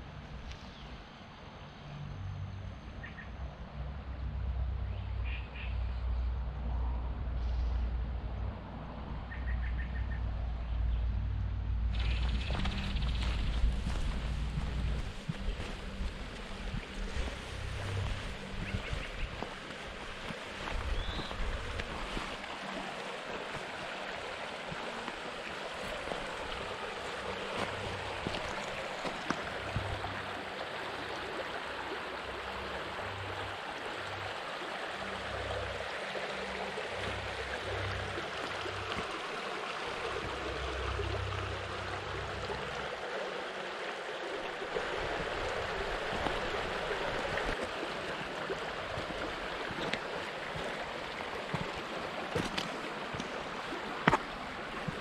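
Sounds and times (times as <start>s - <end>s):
low rumbles: 11.0s - 19.6s
river rushing over rocks: 11.9s - 55.0s.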